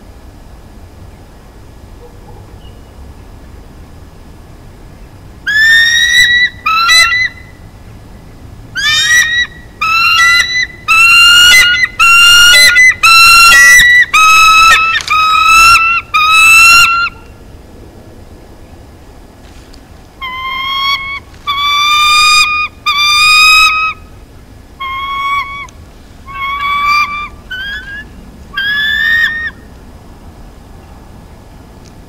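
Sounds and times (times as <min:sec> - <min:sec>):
eagle piping calls: 0:05.5 - 0:07.6, 0:08.8 - 0:17.3, 0:20.2 - 0:24.1, 0:24.8 - 0:29.7.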